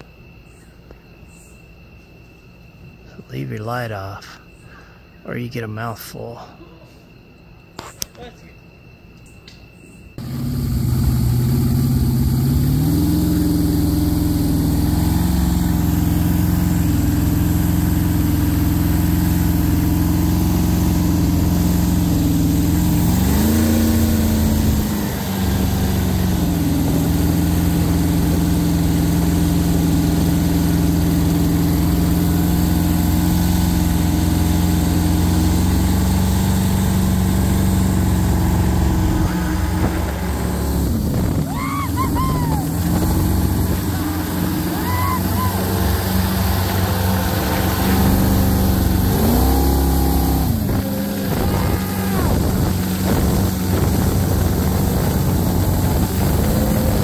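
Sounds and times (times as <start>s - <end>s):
boat engine running: 10.2s - 57.0s
rush of wind and water: 39.6s - 57.0s.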